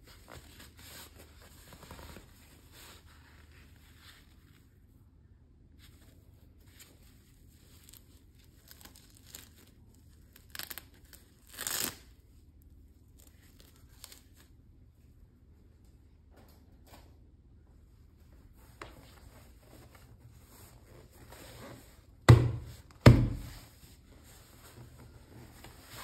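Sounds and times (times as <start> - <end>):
soft handling rustles: 0.0 - 5.0, 5.7 - 11.1, 15.7 - 26.0
velcro strap tearing: 10.3 - 12.1.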